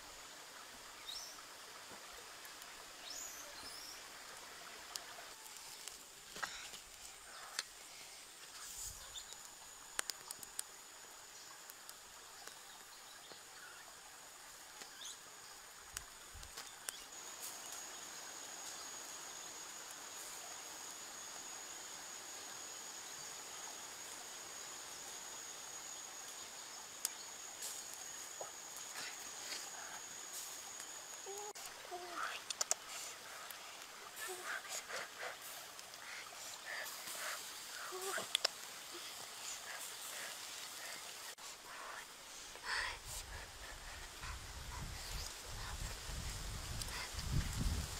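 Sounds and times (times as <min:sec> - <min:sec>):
insects trilling: 0:00.0 - 0:47.9
outdoor background noise: 0:00.0 - 0:47.9
sharp clicks: 0:32.4 - 0:32.8.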